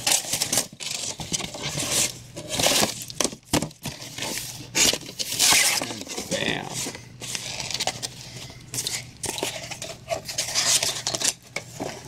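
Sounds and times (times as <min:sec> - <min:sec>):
cardboard scraping and rubbing: 0:00.0 - 0:03.0, 0:03.8 - 0:08.3, 0:08.9 - 0:12.0.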